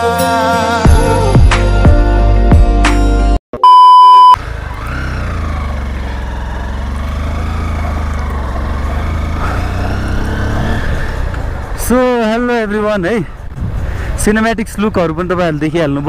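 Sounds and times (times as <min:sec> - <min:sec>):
electronic beep: 0:03.6 - 0:04.4
motorcycle engine running: 0:04.4 - 0:14.2
wind noise on microphone: 0:13.5 - 0:14.2.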